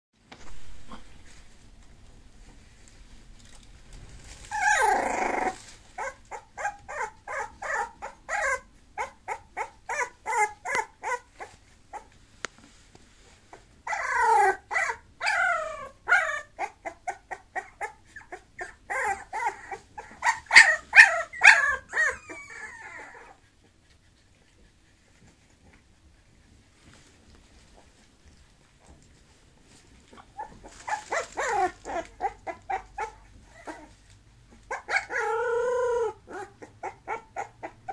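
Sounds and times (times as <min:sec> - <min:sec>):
puppy cry: 0:04.5 - 0:12.1, 0:13.8 - 0:23.5, 0:30.1 - 0:37.9
puppy whimpering and yipping: 0:04.5 - 0:12.1, 0:13.5 - 0:23.7, 0:30.1 - 0:37.9
puppy whining: 0:04.5 - 0:12.2, 0:13.5 - 0:26.6, 0:29.8 - 0:37.9.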